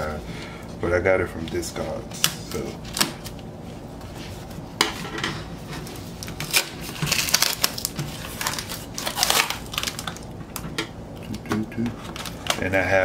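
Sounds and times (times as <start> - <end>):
cardboard and tape scraping crinkling: 5.6 - 10.2.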